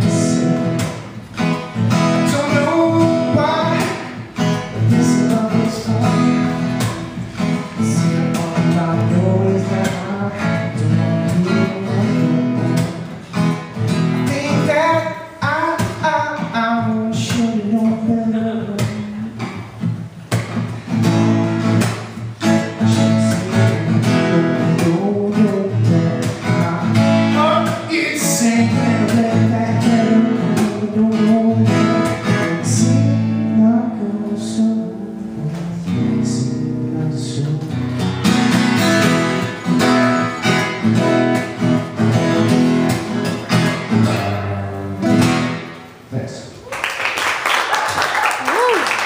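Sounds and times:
man singing: 0.0 - 0.8, 2.2 - 7.0, 7.6 - 13.0, 14.2 - 19.6, 22.4 - 38.0
acoustic guitar strummed and picked: 0.0 - 46.2.

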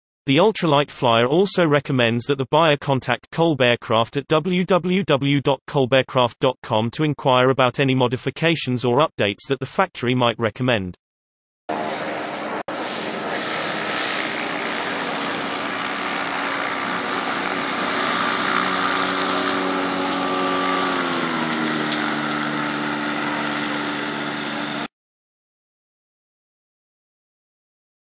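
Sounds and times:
small propeller engine running: 11.7 - 24.9.

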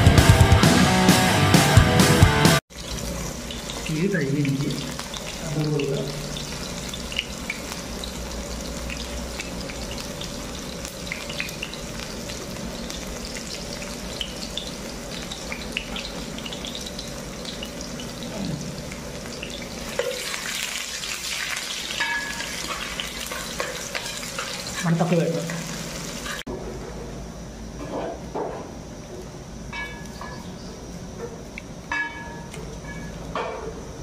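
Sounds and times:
onions sizzling in hot oil: 2.7 - 26.5.

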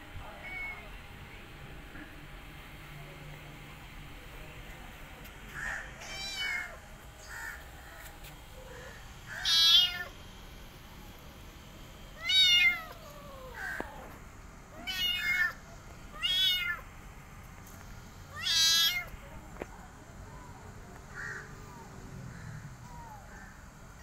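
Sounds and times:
kitten meowing: 0.4 - 0.9, 9.3 - 10.1, 12.2 - 14.1, 14.8 - 15.6, 16.2 - 16.8, 18.3 - 19.1.

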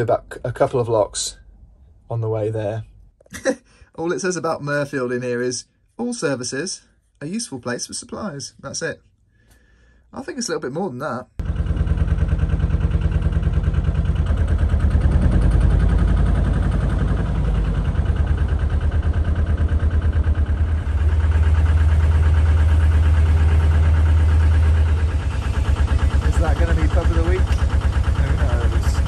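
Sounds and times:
boat diesel engine chugging: 11.4 - 29.0.

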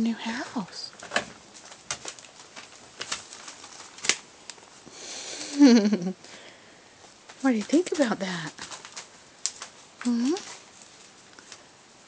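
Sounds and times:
newspaper rustling: 0.2 - 4.8, 7.0 - 11.8.

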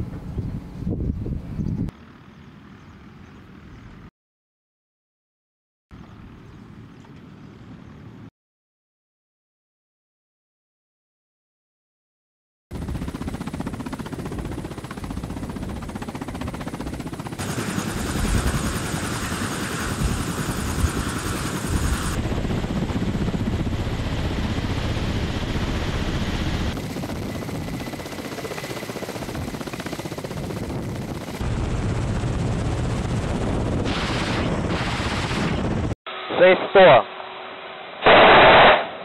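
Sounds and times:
helicopter rotor thrum: 12.7 - 35.9
turbine whine: 17.4 - 39.0.

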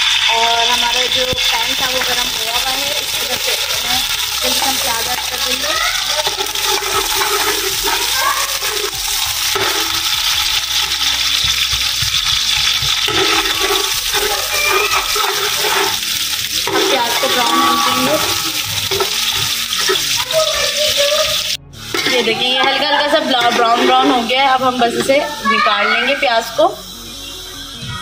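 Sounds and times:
onions sizzling in oil: 0.0 - 27.5
spatula scraping a metal pot: 6.1 - 20.4, 21.4 - 25.4.

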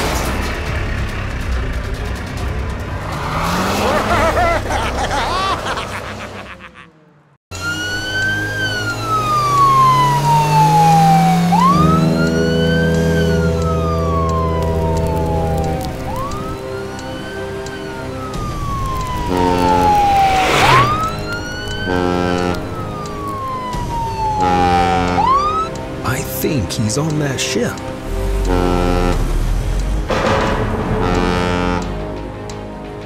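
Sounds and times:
police siren wailing: 7.5 - 26.0, 31.0 - 32.1.

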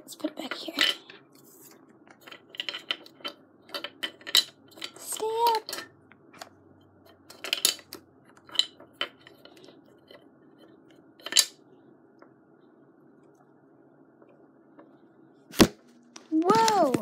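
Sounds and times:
faint room hum: 0.0 - 17.0.

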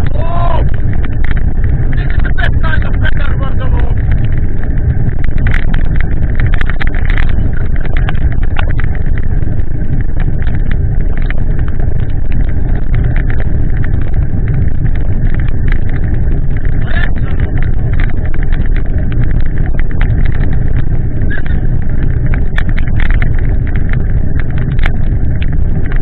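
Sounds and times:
sharp clicks and taps: 0.0 - 9.4
wind buffeting microphone: 0.0 - 26.0.

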